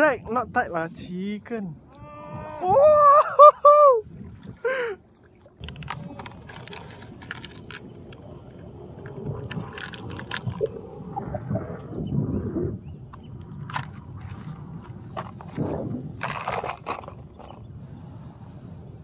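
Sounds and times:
water sloshing around legs: 0:04.2 - 0:10.8
small clicks and rattles: 0:05.6 - 0:08.2.

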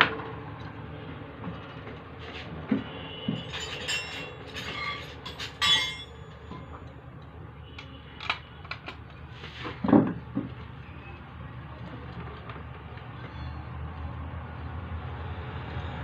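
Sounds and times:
metal parts clinking and scraping: 0:03.4 - 0:06.2.

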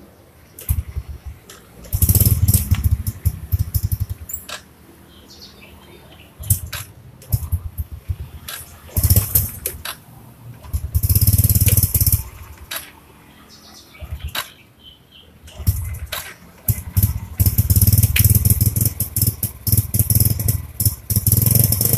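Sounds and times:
motorcycle engine starting and dying: 0:00.6 - 0:04.7, 0:06.4 - 0:12.9, 0:14.0 - 0:14.6, 0:15.4 - 0:21.9.

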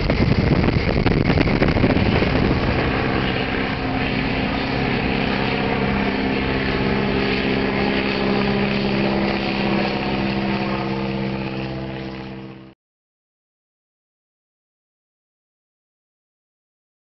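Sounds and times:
biplane engine droning overhead: 0:00.0 - 0:12.8.

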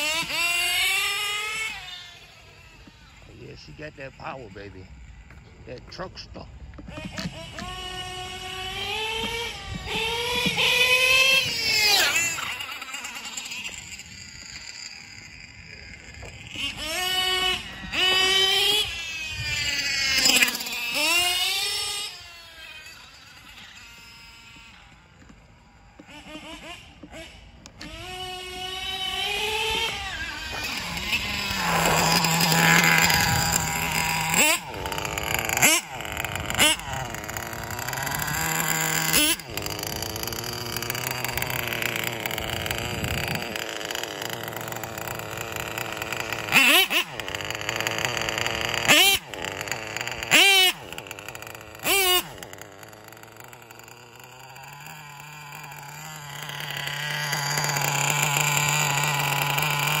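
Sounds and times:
model engine idling and revving: 0:00.0 - 1:00.0.

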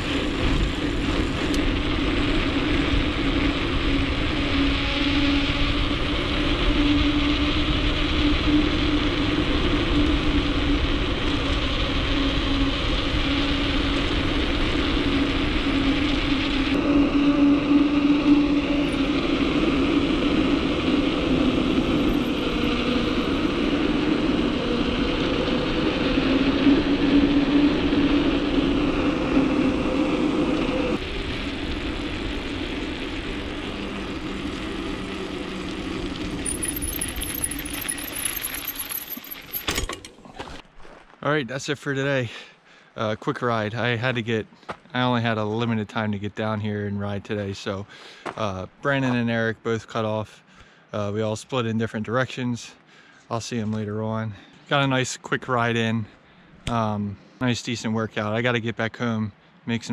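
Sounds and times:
bike tyres rolling on asphalt: 0:00.0 - 0:41.3.

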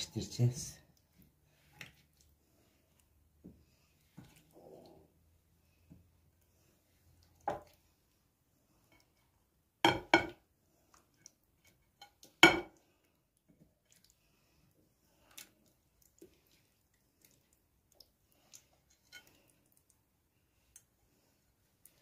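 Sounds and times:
glass dishware knocking: 0:09.9 - 0:10.4.

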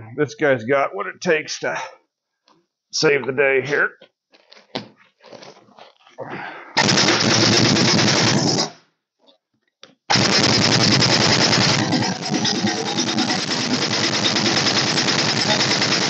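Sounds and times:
pneumatic impact wrench hammering: 0:10.1 - 0:16.0.

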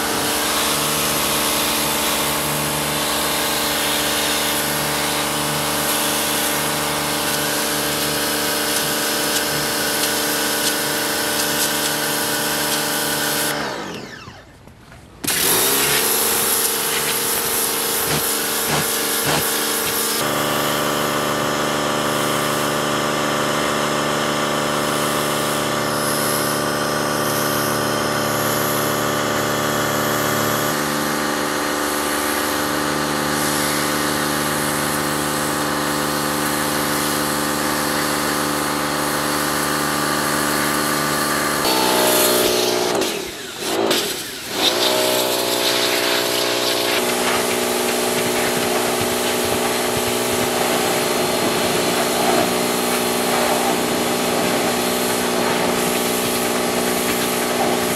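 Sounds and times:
pressure washer motor whining: 0:00.0 - 0:57.9
water jet hissing on wood: 0:44.2 - 0:57.9.

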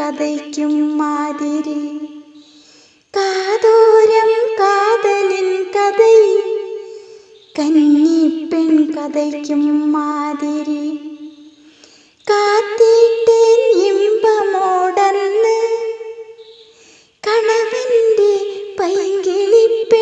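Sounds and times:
short breaths: 0:02.4 - 0:03.1, 0:06.9 - 0:07.5, 0:11.5 - 0:12.3, 0:16.4 - 0:17.2.

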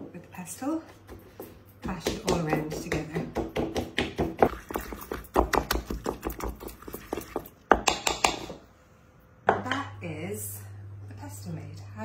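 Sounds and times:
pestle knocking in a mortar: 0:00.9 - 0:08.6.

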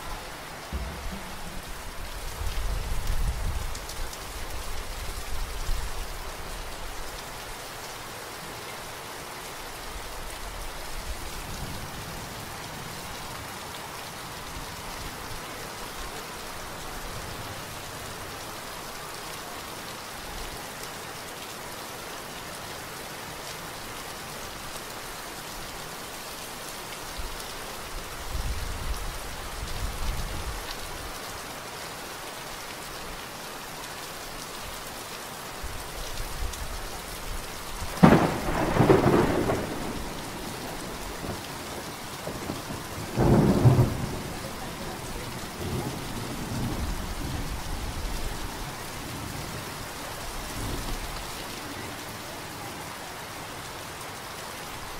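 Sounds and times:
steady rain falling: 0:00.0 - 0:54.9
low rumbles: 0:00.6 - 0:03.4.

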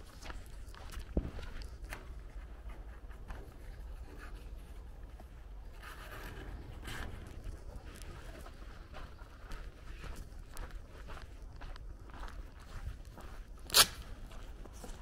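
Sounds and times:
footsteps on a lane: 0:00.0 - 0:15.0
steady low rumble: 0:00.7 - 0:13.5.

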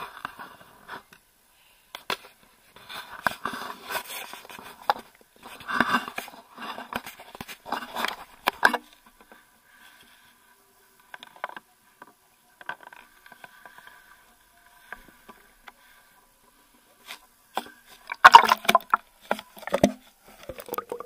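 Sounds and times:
rustling and scraping: 0:02.1 - 0:10.4.

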